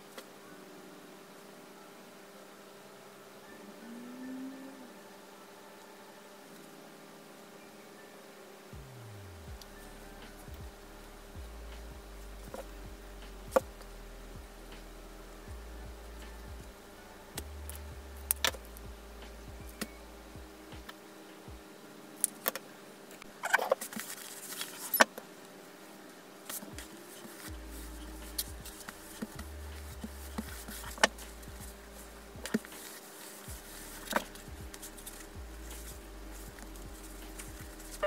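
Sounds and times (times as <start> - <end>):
faint steady hum: 0.0 - 38.0.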